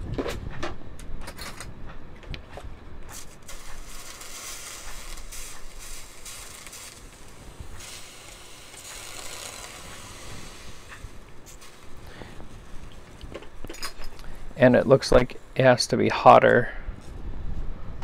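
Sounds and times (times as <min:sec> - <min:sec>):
water spray hissing on hot metal: 0:03.1 - 0:13.3.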